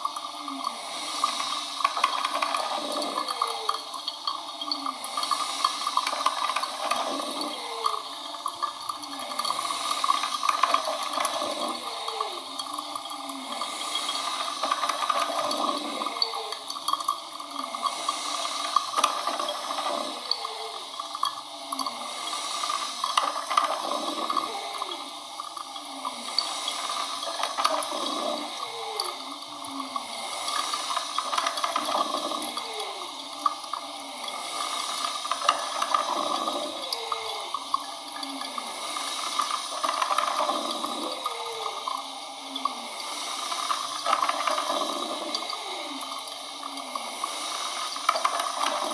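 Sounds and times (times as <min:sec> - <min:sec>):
coffee machine hissing: 0:00.0 - 0:48.9.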